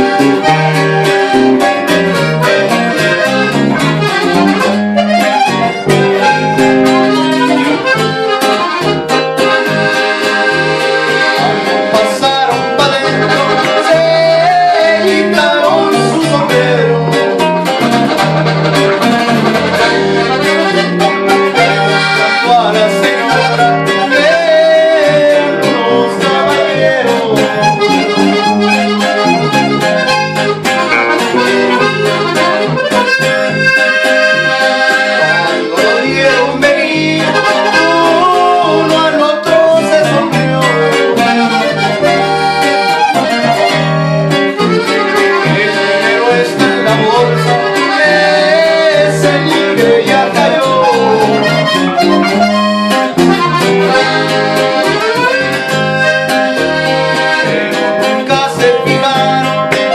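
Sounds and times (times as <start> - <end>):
button accordion melody: 0.0 - 59.9
electric bass line: 0.0 - 59.9
strummed guitar: 0.0 - 59.9
man singing: 11.3 - 18.0, 21.7 - 28.4, 34.6 - 42.3, 44.8 - 52.4, 58.0 - 59.9.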